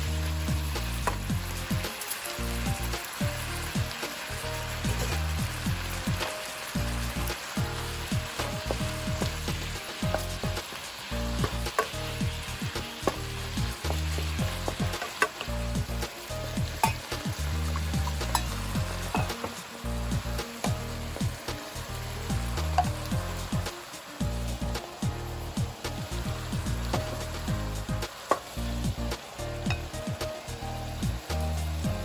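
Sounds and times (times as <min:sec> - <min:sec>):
vegetables and meat sizzling: 0:00.0 - 0:32.0
wooden spatula knocking pan: 0:08.1 - 0:10.8, 0:11.4 - 0:15.6, 0:16.6 - 0:19.6, 0:22.5 - 0:23.7.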